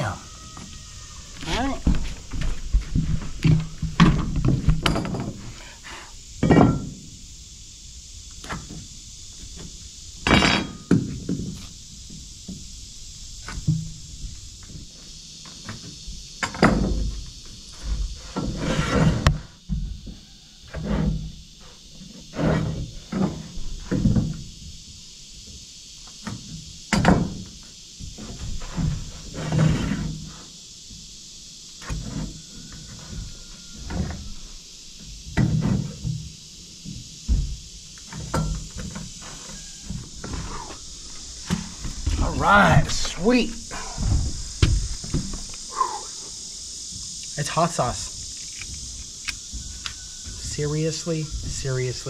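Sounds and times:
steady high hiss: 0.0 - 52.0
wood knocks and thuds: 1.4 - 5.5, 9.5 - 11.7, 15.6 - 21.4, 22.4 - 24.5, 26.2 - 30.2, 35.0 - 40.7, 41.4 - 45.5
heavy thud: 43.6 - 46.0.

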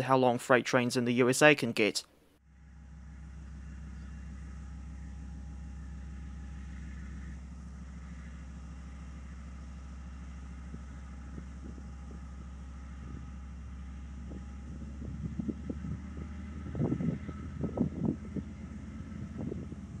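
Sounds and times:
diesel locomotive engine drone: 2.4 - 20.0
wind buffeting microphone: 10.5 - 20.0.

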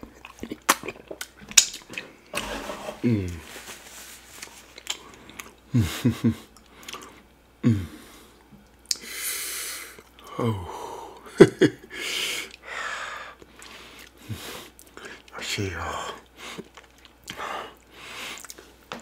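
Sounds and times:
man making wordless vocal sounds: 10.2 - 11.3, 15.3 - 16.2
breathy huffs: 11.9 - 15.2.

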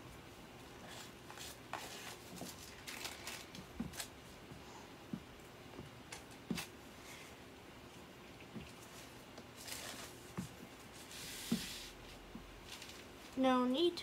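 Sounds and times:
scratchy paint strokes: 8.6 - 12.2.

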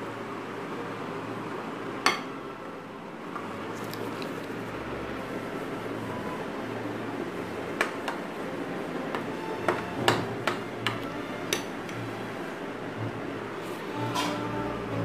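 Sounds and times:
utensil stirring batter: 3.6 - 4.8
steady low hum: 10.6 - 15.0.

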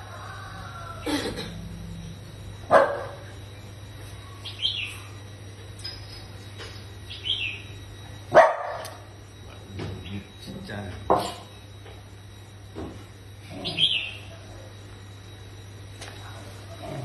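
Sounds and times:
steady low hum: 0.0 - 17.0
dog barking: 2.7 - 3.3, 8.3 - 9.0.

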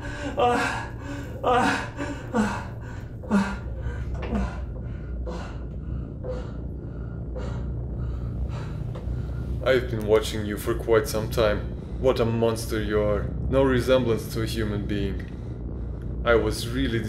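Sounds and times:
man gasping and moaning: 0.0 - 9.6
low steady hum: 0.0 - 17.0.

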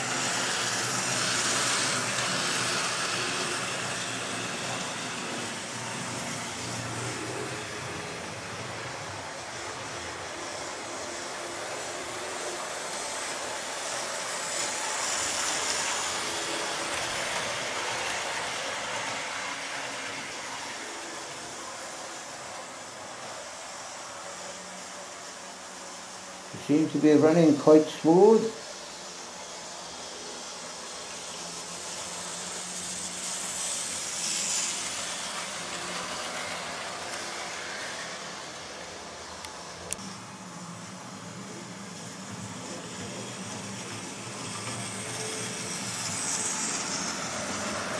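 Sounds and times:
model train motor and wheels whirring: 0.0 - 47.9.

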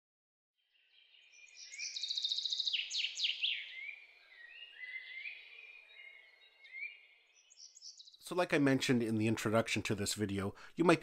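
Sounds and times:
birdsong trills and whistles: 0.6 - 8.2.

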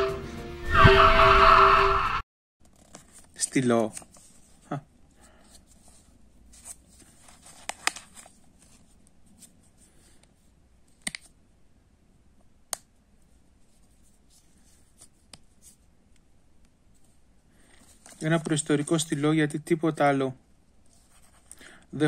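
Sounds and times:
faint handling noise: 2.6 - 11.4, 13.1 - 19.2, 20.6 - 21.6.

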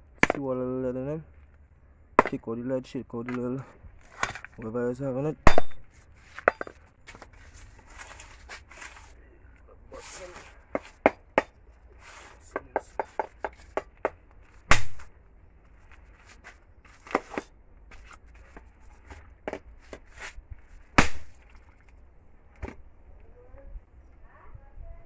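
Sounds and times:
machete chopping plastic case: 14.7 - 15.1, 21.0 - 21.4.

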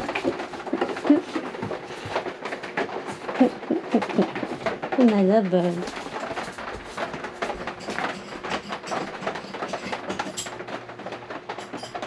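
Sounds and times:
footsteps: 0.0 - 8.4.

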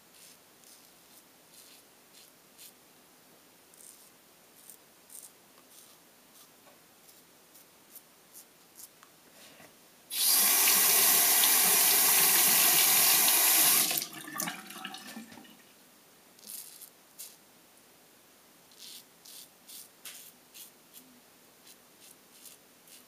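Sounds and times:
razor rinsed under water: 10.1 - 15.3.

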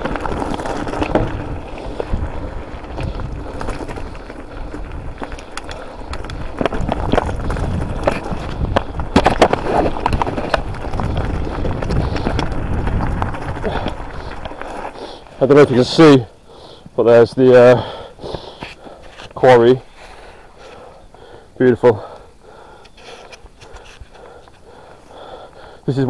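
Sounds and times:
wind on microphone: 0.0 - 14.5
bike tyres crunching over stones: 0.0 - 26.0.

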